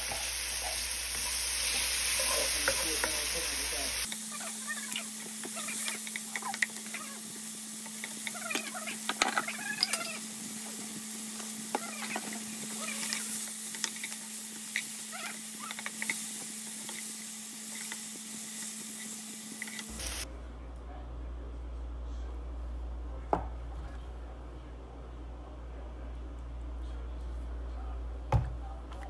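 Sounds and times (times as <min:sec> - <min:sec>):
vegetables sizzling in oil: 0:00.0 - 0:20.3.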